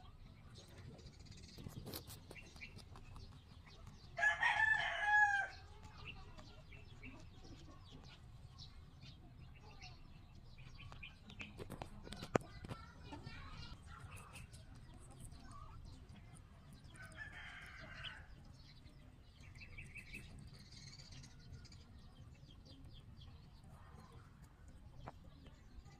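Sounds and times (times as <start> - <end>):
rabbits chewing clicks: 0.1 - 9.2, 9.8 - 25.9
rooster crowing: 4.2 - 5.6.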